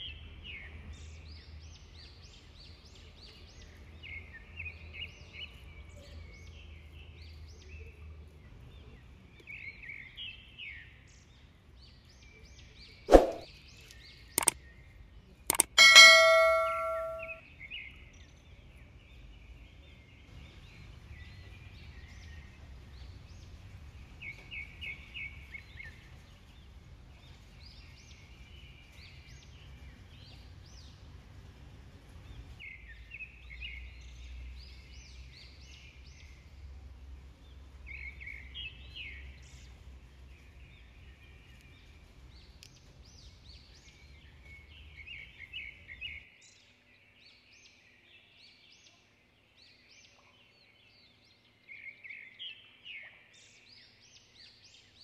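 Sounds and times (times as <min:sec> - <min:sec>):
click and bell chime: 0:15.5 - 0:17.4.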